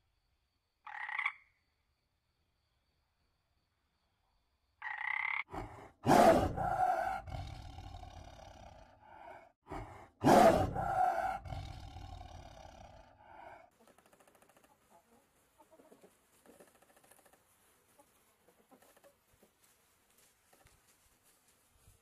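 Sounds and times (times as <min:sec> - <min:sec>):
frog croaking: 0:00.8 - 0:01.6, 0:04.8 - 0:05.6
tiger roaring: 0:05.5 - 0:13.6.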